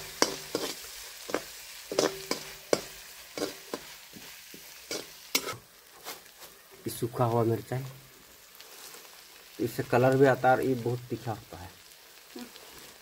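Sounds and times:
metal spatula scraping a pan: 0.0 - 6.4
faint sizzle: 0.0 - 13.0.

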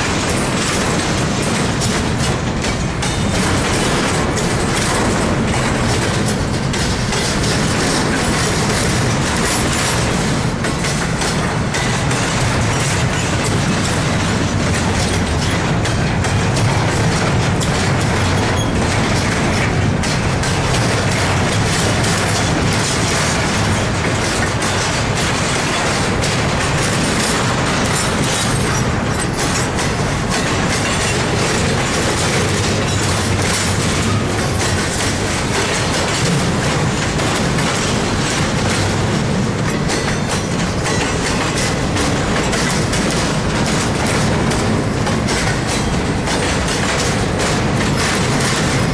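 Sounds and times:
freight train wheels rumbling: 0.0 - 48.9
wheels clicking over rail joints: 0.0 - 48.9.

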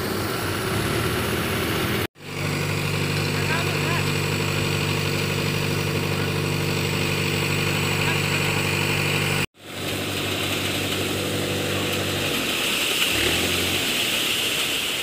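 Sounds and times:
tractor diesel engine idling: 0.0 - 14.4.

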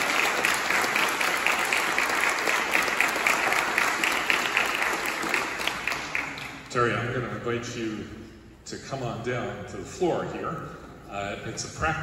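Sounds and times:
crowd applauding: 0.0 - 6.7.

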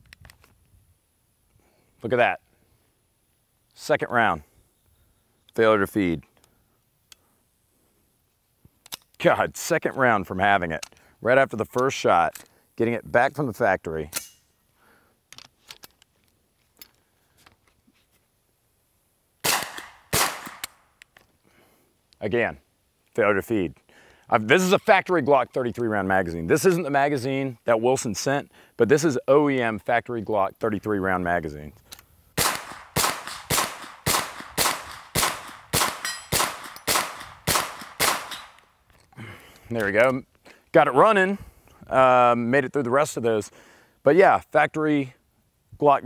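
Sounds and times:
metallic gun handling clicks: 8.8 - 9.2, 14.1 - 14.5, 34.4 - 40.2
gunshots: 19.4 - 20.7, 32.4 - 38.6.

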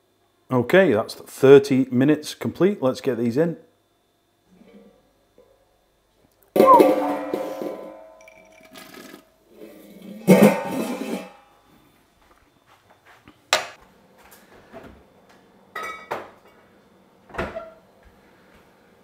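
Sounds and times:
plucked guitar notes: 6.6 - 8.2.

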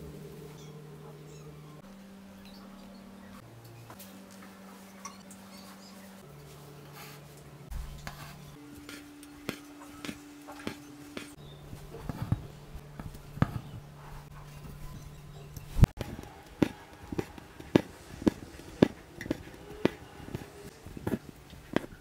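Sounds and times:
steady low hum: 0.0 - 22.0
needle punching through fabric: 15.9 - 22.0.

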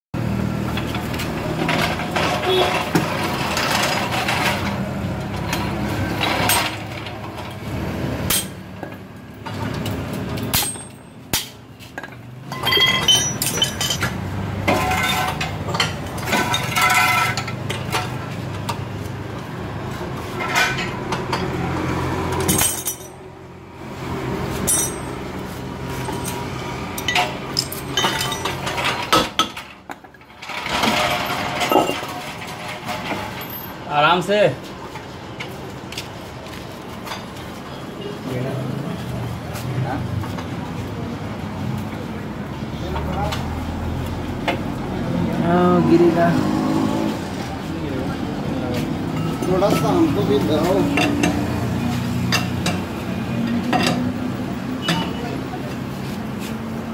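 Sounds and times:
hand tools clinking on metal: 5.4 - 7.4, 9.8 - 18.2, 22.3 - 23.2, 24.6 - 25.3, 25.9 - 33.8
tools set down on concrete: 27.0 - 33.7.

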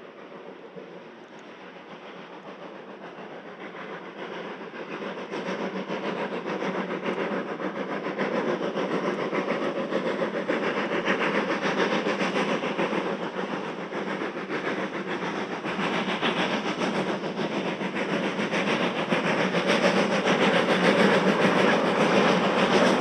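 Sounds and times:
steam locomotive chuffing: 0.0 - 23.0.

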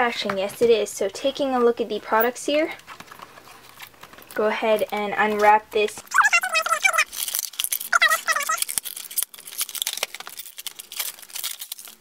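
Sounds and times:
plastic wrap crinkling and tearing: 2.8 - 12.0.

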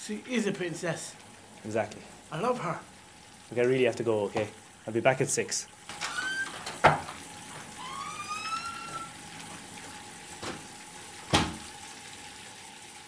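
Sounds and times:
faint watery hiss: 0.0 - 12.4
short rising squeak: 6.0 - 6.6, 7.8 - 9.2
small knocks or splashes: 8.7 - 11.8.

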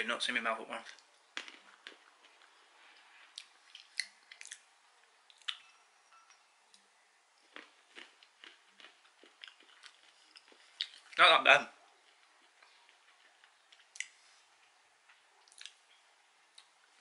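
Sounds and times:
chewing crunchy peanuts: 0.8 - 4.7, 7.4 - 11.2.

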